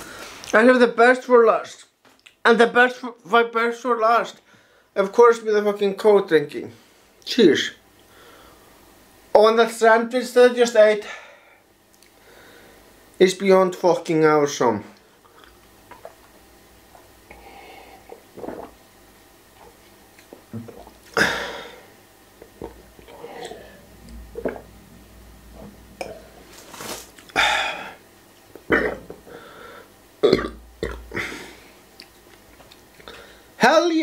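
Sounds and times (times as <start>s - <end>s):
man drinking from a glass: 15.3s - 18.8s, 19.5s - 29.3s, 30.2s - 32.2s
loud burps: 18.3s - 18.8s, 20.5s - 21.8s, 22.4s - 24.8s, 25.5s - 26.4s, 28.6s - 29.2s, 30.2s - 31.5s.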